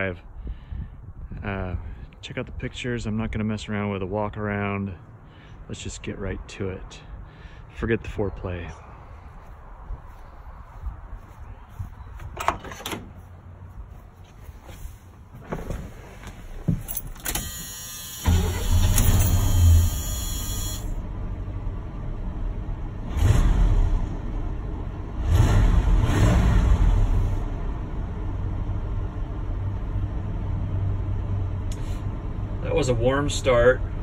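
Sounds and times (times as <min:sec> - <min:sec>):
starter motor cranking: 0:17.2 - 0:20.9
car engine revving and idling: 0:18.3 - 0:32.6.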